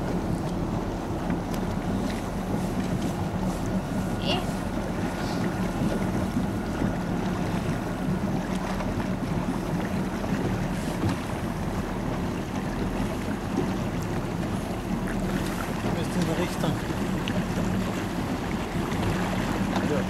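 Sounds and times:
boat engine low hum: 0.0 - 20.0
water washing against hull: 0.0 - 20.0.

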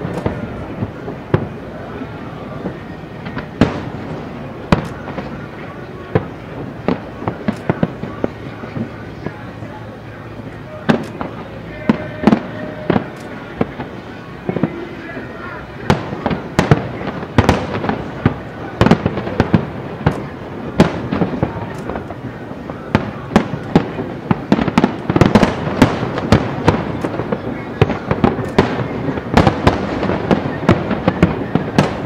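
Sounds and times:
fireworks booming and banging: 0.0 - 32.0
fireworks crackling: 0.0 - 32.0.

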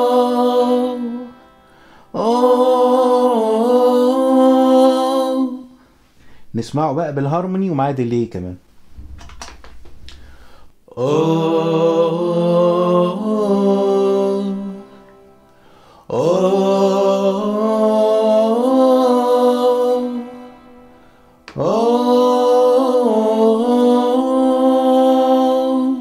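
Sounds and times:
man singing with vocal effects: 0.0 - 1.4, 2.1 - 5.8, 10.9 - 15.0, 16.0 - 20.6, 21.5 - 26.0.

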